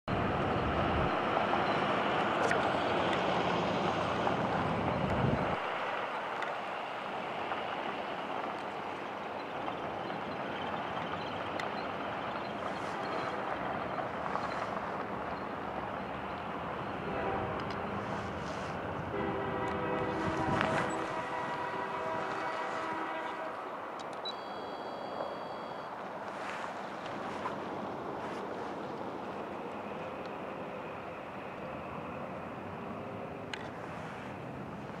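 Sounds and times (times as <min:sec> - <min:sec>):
wind buffeting microphone: 0:00.1 - 0:06.4, 0:07.0 - 0:24.0
diesel locomotive rumble: 0:00.1 - 0:35.0
locomotive horn: 0:17.0 - 0:23.8.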